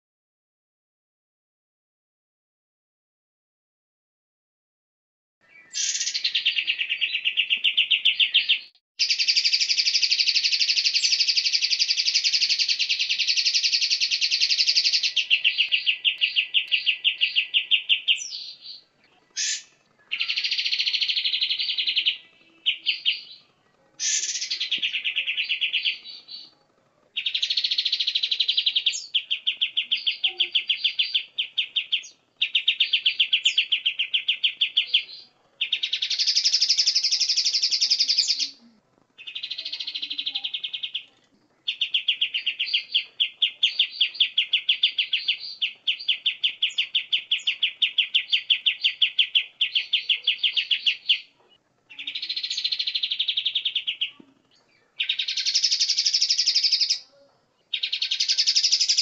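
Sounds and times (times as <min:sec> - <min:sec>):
bird single calls: 0:05.6 - 0:23.4
songbird fast high trill: 0:05.7 - 0:07.3, 0:19.4 - 0:22.2, 0:24.0 - 0:26.1.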